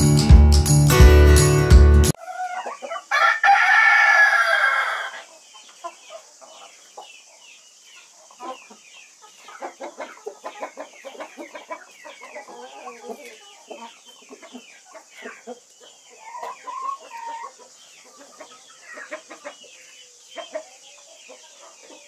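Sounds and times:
intro music: 0:00.0 - 0:02.2
chickens clucking: 0:02.1 - 0:22.0
rooster crowing: 0:02.2 - 0:05.3.

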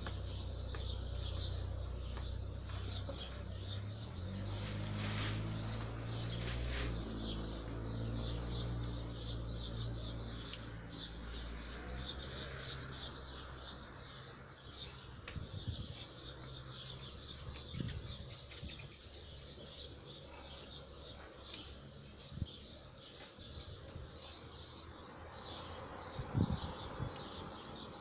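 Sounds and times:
small bird chirping: 0:00.0 - 0:28.0.

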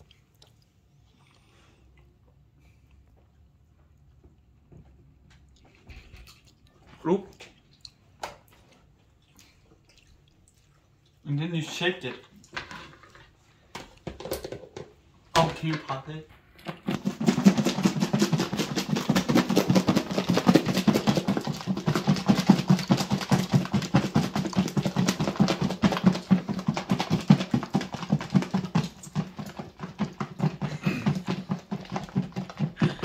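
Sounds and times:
food rattling in shaken plastic container: 0:14.1 - 0:33.0.

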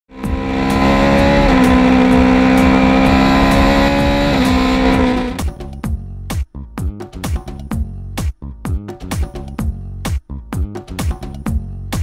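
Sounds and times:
buzzing synth chord: 0:00.1 - 0:05.4
punchy electronic beat: 0:00.1 - 0:05.6
steady kick drum: 0:00.1 - 0:12.0.

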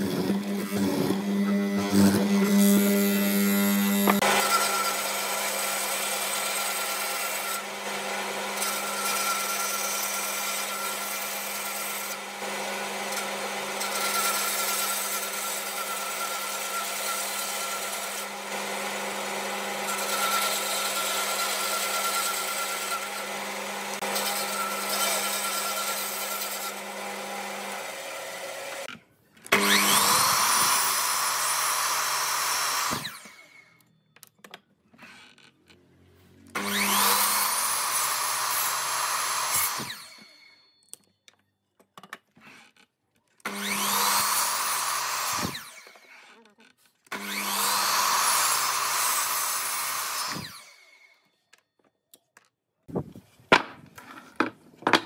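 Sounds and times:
band saw running: 0:00.0 - 0:28.9, 0:29.5 - 0:33.6, 0:36.5 - 0:40.4, 0:43.5 - 0:46.2, 0:47.1 - 0:50.8
miter saw cutting wood: 0:00.0 - 0:33.8, 0:35.0 - 0:40.6, 0:43.4 - 0:51.2
wooden blocks knocking: 0:53.5 - 0:55.0.

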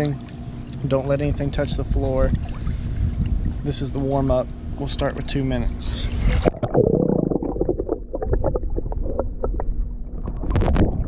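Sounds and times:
muffled underwater churning rumble: 0:00.0 - 0:11.0
underwater bubbly clicks and pops: 0:06.3 - 0:11.0.

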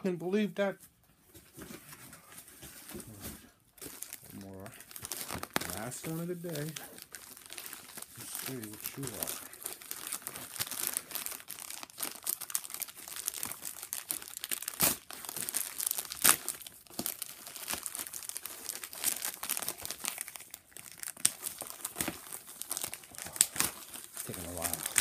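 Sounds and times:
package wrapping crinkling: 0:02.4 - 0:25.0
wrapping tearing: 0:02.9 - 0:25.0.

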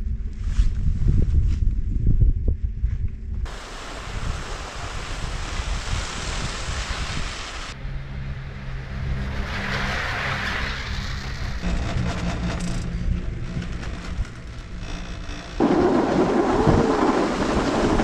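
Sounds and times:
wind noise on microphone: 0:00.0 - 0:07.8, 0:15.6 - 0:18.0.

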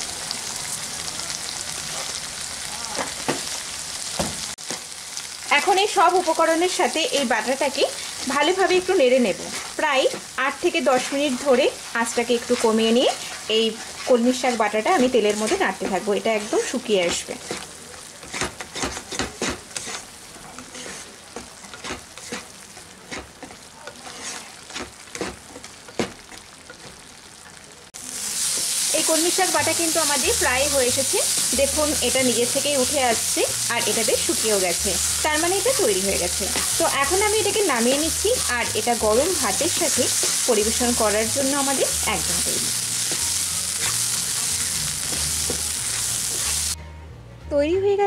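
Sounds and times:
paste sizzling in oil: 0:00.0 - 0:46.8
spatula scraping pan: 0:07.1 - 0:27.0, 0:29.4 - 0:46.8.

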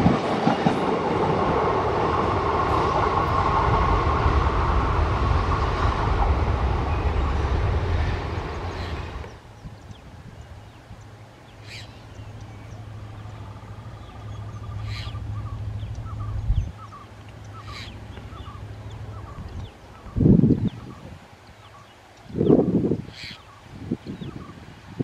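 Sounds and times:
diesel locomotive engine humming: 0:00.0 - 0:20.9
birds calling: 0:08.0 - 0:24.6.

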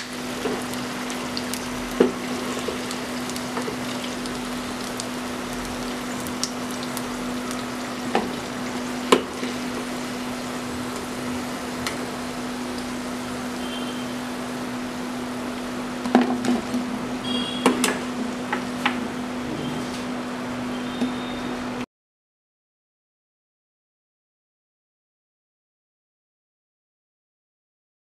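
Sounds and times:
fritters sizzling in hot oil: 0:00.0 - 0:19.1.

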